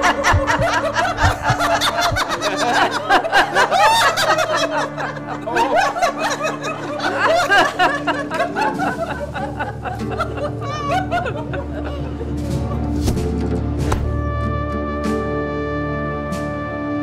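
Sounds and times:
people laughing: 0.0 - 12.9
background music drone: 0.0 - 17.0.

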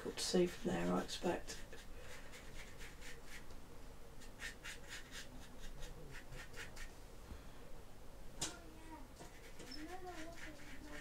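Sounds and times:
paintbrush scrubbing: 0.0 - 3.5, 4.2 - 6.9, 9.2 - 11.0.

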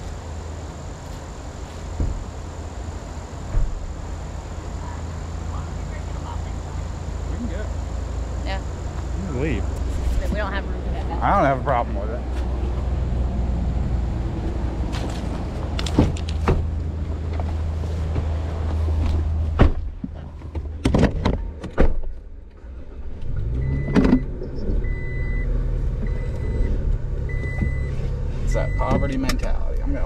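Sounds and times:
engine running low hum: 0.0 - 30.0
vehicle door thud: 3.5 - 4.0, 15.8 - 16.7, 19.0 - 22.2.

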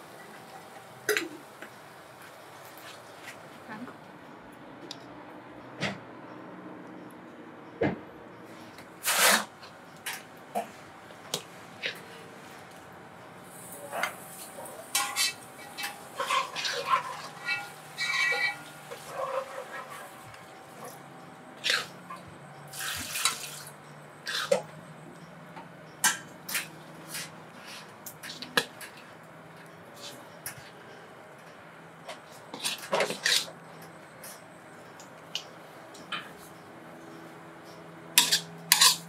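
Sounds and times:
metal spatula scraping a wok: 9.0 - 9.5, 13.5 - 20.2, 24.3 - 24.6, 32.5 - 33.6, 38.2 - 39.0.

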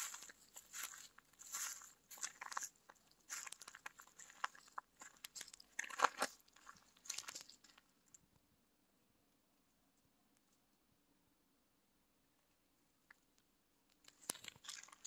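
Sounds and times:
footsteps crunching on gravel and leaves: 0.0 - 7.8, 14.4 - 15.0.

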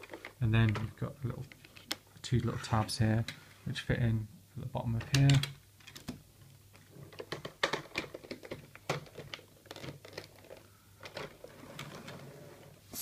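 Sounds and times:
plastic toy parts clicking: 7.1 - 11.9.

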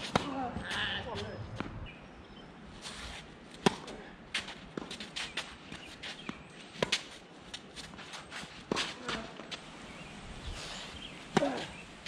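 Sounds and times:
shoe scuffs on court: 2.8 - 9.6, 10.5 - 11.8
tennis ball bouncing on court: 3.6 - 5.0
tennis ball hit by racquets: 3.6 - 5.2, 11.3 - 11.8.

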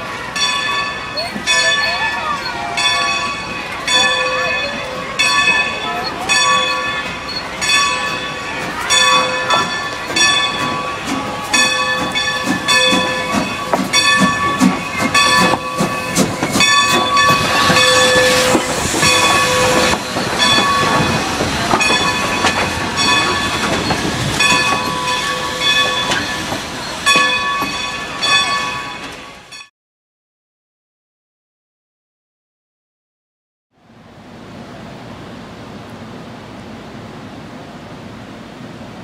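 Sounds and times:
locomotive bell ringing: 0.0 - 29.7
steam locomotive exhaust chuffs: 2.5 - 29.2
steam hissing: 4.8 - 28.2.

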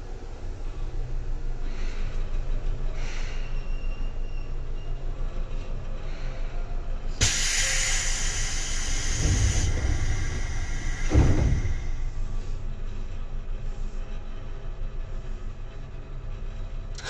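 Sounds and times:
low rumble of train car: 0.0 - 17.0
compressed air hiss: 7.2 - 12.2
low thuds: 8.4 - 12.8.

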